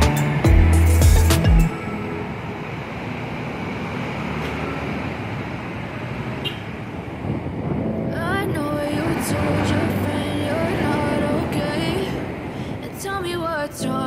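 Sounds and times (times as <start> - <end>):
heavy bass music beats: 0.0 - 1.7
cars and motor scooters passing: 0.0 - 14.0.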